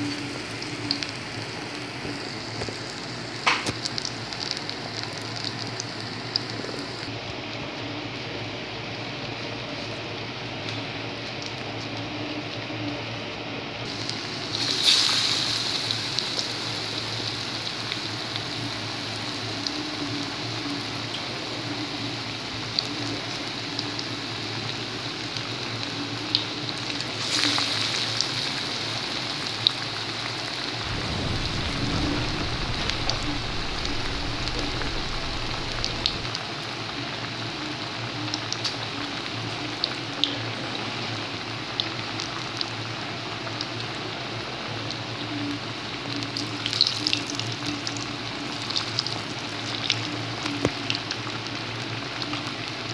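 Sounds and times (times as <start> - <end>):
food deep-frying in hot oil: 0.0 - 52.9.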